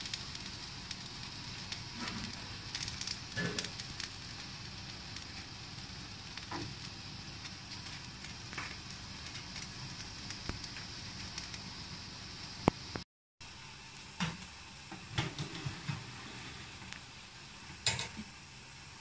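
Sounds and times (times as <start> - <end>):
fat sizzling and spitting: 0.0 - 13.0
small crackles: 0.0 - 13.0.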